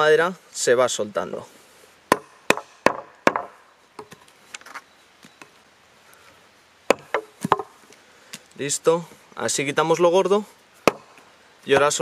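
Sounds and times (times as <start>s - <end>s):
axe knocking into wood: 2.1s - 4.2s, 6.9s - 7.7s, 10.8s - 11.1s.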